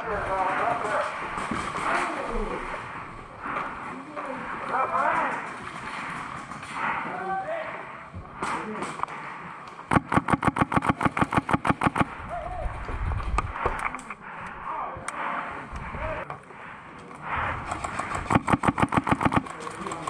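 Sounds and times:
airsoft gun full-auto burst: 9.9s - 12.1s, 17.6s - 20.0s.

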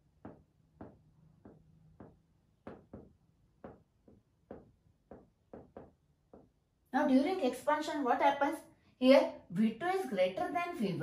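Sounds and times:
chalk tapping on chalkboard: 0.2s - 6.6s.

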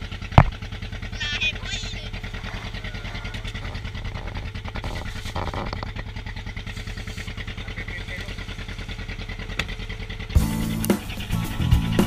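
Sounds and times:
boat engine chugging: 0.0s - 12.0s.

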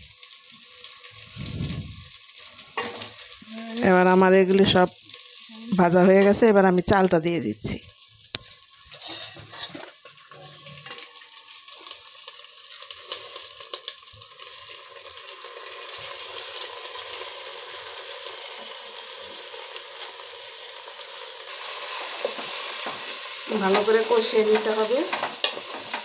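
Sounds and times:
grain sizzling in hot oil: 0.0s - 26.0s.

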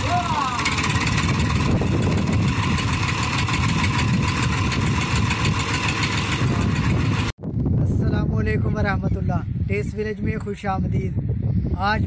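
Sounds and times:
tractor diesel engine running: 0.0s - 7.4s.

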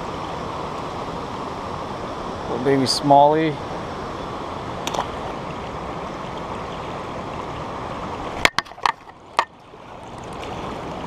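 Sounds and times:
river water rushing: 0.0s - 11.0s
sharp knocks: 8.4s - 9.5s.

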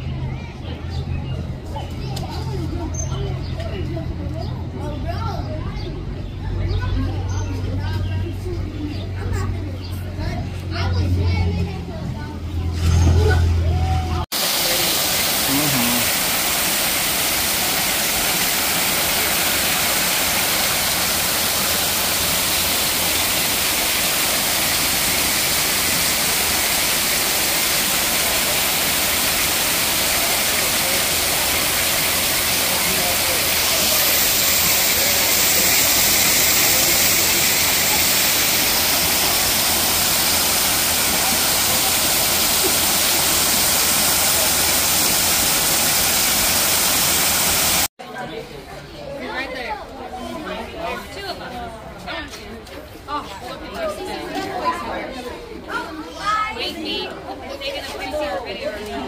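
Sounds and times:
waterfall rushing and splashing: 14.3s - 47.9s.

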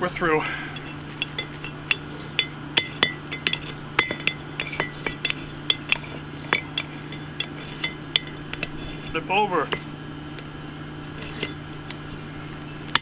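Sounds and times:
hammer striking steel on anvil: 0.8s - 9.9s.

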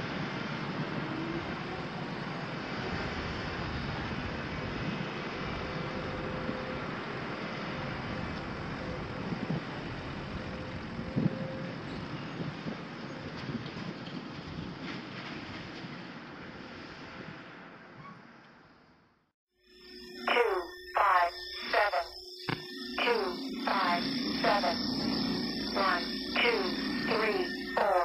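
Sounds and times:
diesel engines running: 0.0s - 17.8s, 23.0s - 28.0s
wind on microphone: 8.2s - 14.8s.

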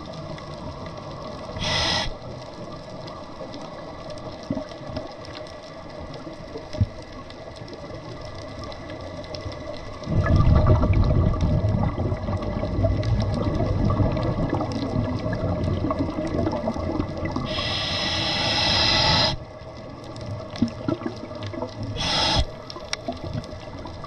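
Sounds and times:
faint steady crackle: 0.0s - 24.0s
regulator inhale hiss: 1.5s - 2.5s, 17.4s - 19.5s, 21.9s - 22.8s
rush of exhaled bubbles: 10.0s - 19.4s, 20.6s - 23.8s.

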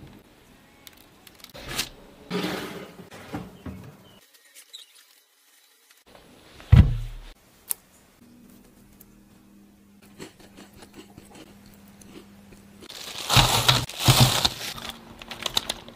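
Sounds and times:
heavy thump: 6.7s - 7.3s
plastic bag and gloves crinkling: 12.9s - 15.9s.

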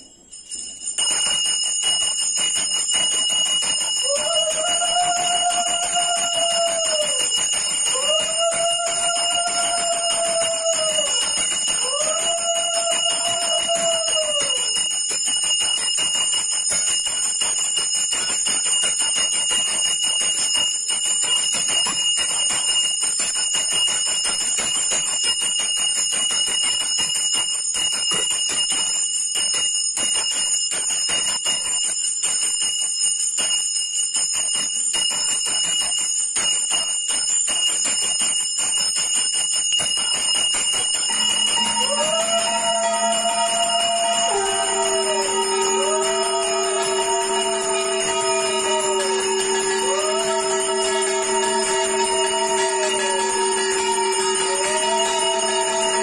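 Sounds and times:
hand bell ringing: 0.0s - 56.0s
conch shell blowing: 41.1s - 56.0s.

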